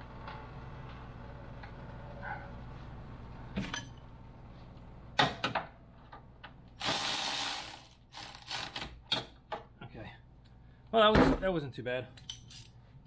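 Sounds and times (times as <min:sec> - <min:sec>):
steady low hum: 0:00.0 - 0:06.8
air ratchet running: 0:06.8 - 0:08.8.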